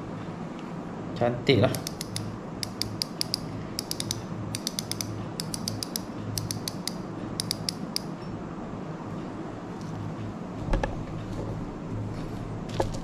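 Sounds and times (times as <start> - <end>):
spinning reel clicking: 1.8 - 7.8.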